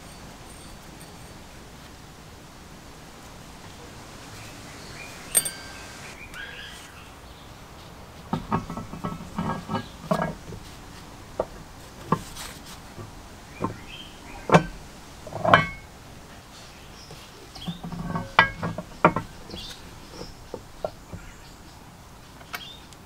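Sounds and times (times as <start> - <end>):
metal knocks and clinks: 0.0 - 1.8, 5.3 - 6.0, 8.3 - 10.7, 13.6 - 15.9, 17.6 - 21.0.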